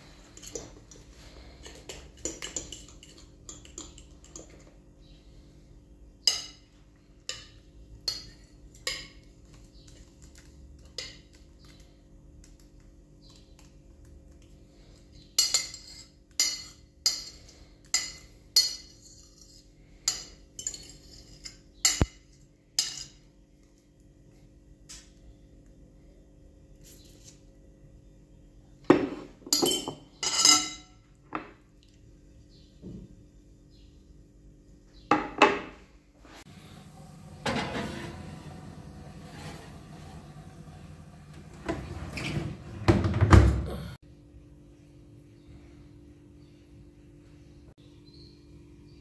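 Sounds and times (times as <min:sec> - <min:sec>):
metal spoon scraping glass bowl: 0:18.7 - 0:19.7, 0:20.6 - 0:21.6.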